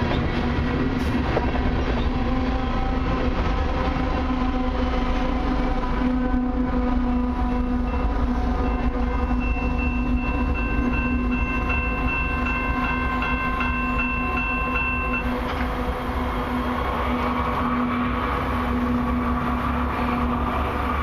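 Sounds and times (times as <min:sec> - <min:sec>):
railway crossing bell ringing: 0:07.0 - 0:15.9.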